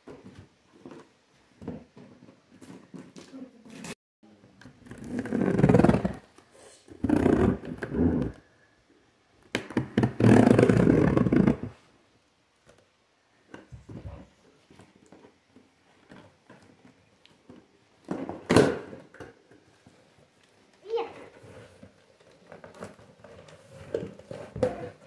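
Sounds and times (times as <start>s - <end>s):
cardboard box scraping: 5.0s - 6.2s.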